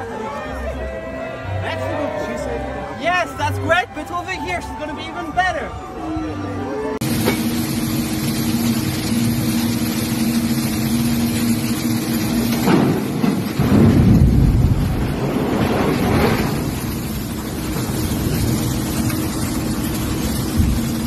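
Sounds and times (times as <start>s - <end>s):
motor humming: 7.0s - 14.0s, 16.3s - 21.0s
uneven rumbling: 7.0s - 21.0s
wind noise on microphone: 20.2s - 21.0s.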